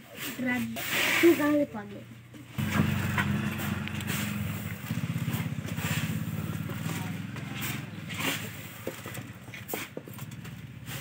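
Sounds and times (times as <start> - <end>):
engine running with fast pulse: 2.6 - 11.0.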